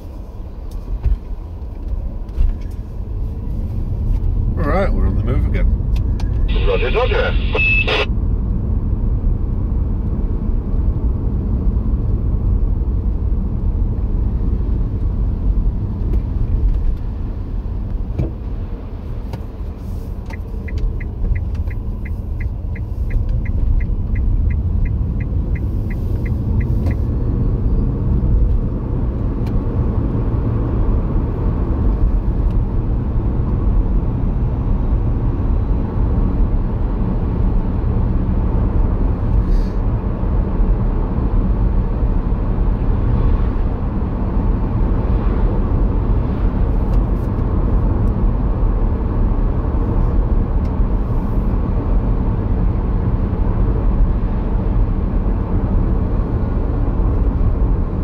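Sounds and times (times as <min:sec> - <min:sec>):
engine and road rumble: 0:00.0 - 0:58.0
turn indicator ticking: 0:20.2 - 0:27.2.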